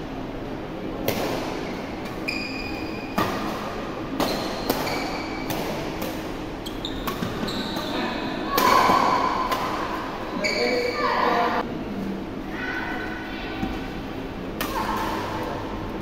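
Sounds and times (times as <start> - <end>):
shoes squeaking on court floor: 1.6 - 3.2, 4.3 - 5.5, 6.6 - 8.4, 10.3 - 11.1.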